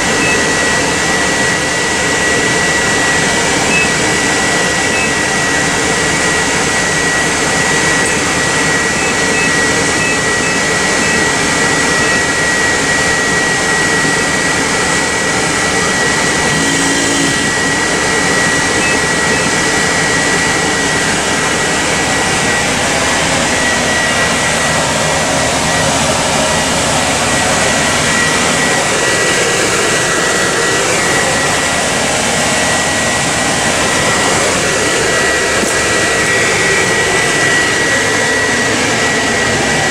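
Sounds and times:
high-pitched whine: 0:00.0 - 0:39.9
whooshing hum of fans and motors: 0:00.0 - 0:39.9.

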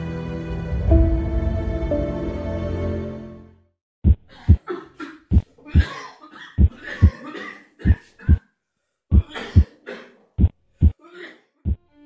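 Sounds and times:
heartbeat thumps: 0:04.0 - 0:04.7, 0:05.3 - 0:06.0, 0:06.6 - 0:07.2, 0:09.1 - 0:09.4, 0:10.4 - 0:11.0, 0:11.6 - 0:11.9
man coughing: 0:04.3 - 0:08.4, 0:09.2 - 0:10.2.

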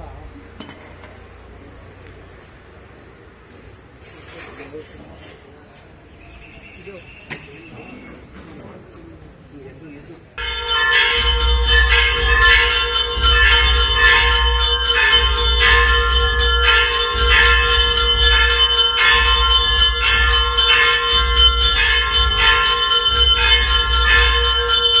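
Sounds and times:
low pulse: 0:10.4 - 0:25.0
temple bells ringing rapidly: 0:10.4 - 0:25.0.

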